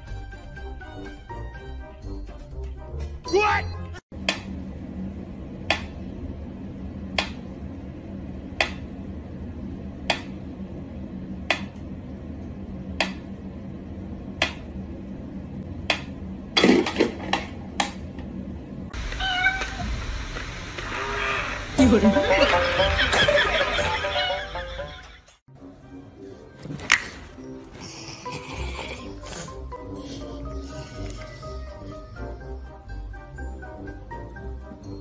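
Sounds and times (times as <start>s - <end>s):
low hum: 4.1s - 25.1s.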